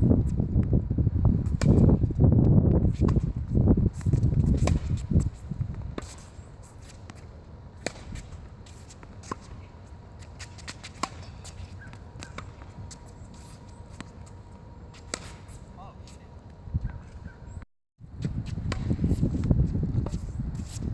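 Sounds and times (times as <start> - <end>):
tennis ball struck by racket: 4.0 - 5.1, 7.8 - 9.6, 10.4 - 13.0, 14.9 - 15.6, 18.7 - 19.2.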